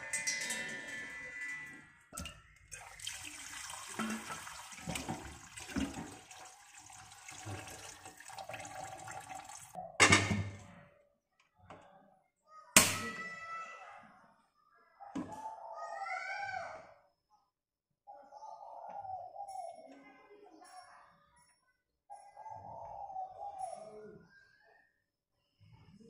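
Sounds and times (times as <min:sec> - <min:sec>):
water pouring into steel pot: 0:00.1 - 0:09.8.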